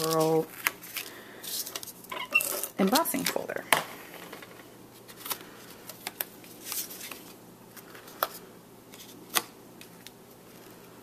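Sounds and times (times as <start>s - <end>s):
paper rustling: 4.1s - 10.9s.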